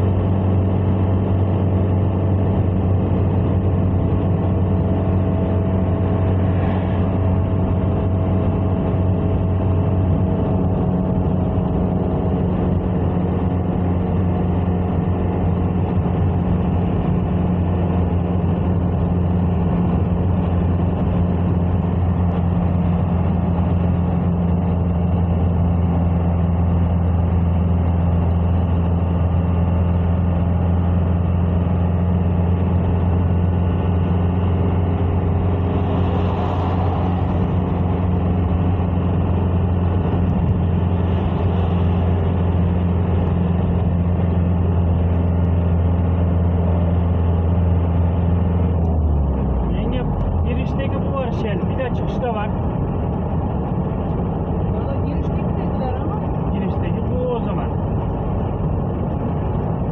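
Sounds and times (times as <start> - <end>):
car engine and road noise: 0.0 - 59.9.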